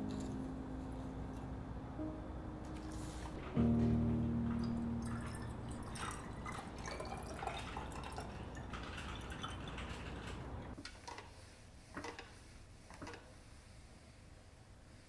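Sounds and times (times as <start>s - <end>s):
water pouring into glass vase: 5.0s - 10.7s.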